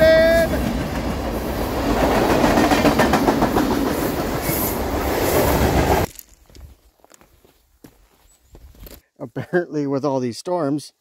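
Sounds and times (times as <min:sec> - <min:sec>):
freight train rumbling: 0:00.0 - 0:06.1
wheels clacking over rail joints: 0:00.6 - 0:04.6.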